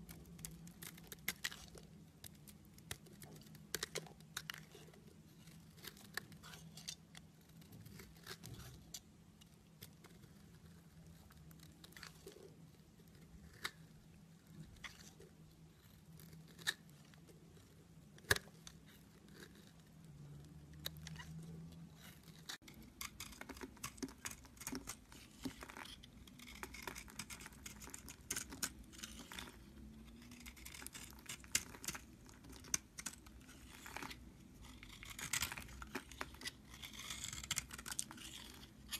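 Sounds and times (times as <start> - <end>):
knife blade scraping soap: 0.4 - 9.1, 15.8 - 19.8, 20.8 - 38.9.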